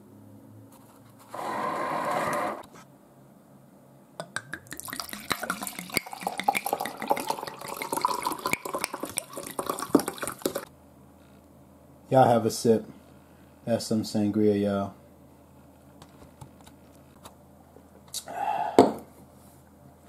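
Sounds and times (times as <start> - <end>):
motorized paper towel dispenser: 1.3 - 2.7
drink pouring into a glass: 4.6 - 10.7.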